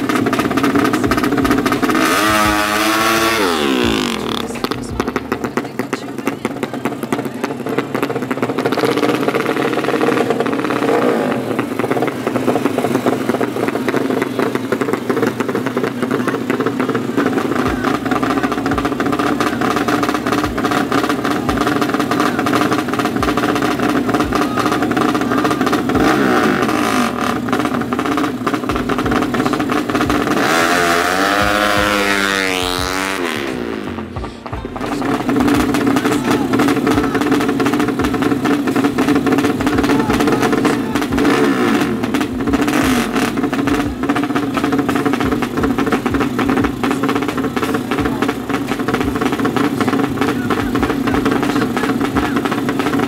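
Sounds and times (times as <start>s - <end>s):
background music: 0.0s - 6.4s, 17.6s - 52.3s
motorcycle engines revving: 0.0s - 53.0s.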